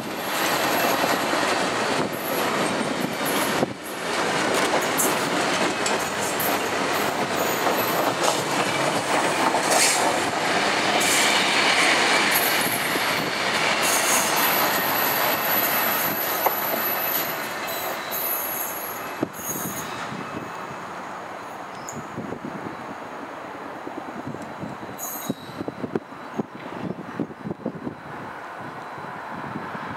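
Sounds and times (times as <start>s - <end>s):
train wheels rumbling on rails: 0.0s - 29.9s
high-pitched wheel squeals: 13.8s - 20.3s, 24.8s - 26.4s.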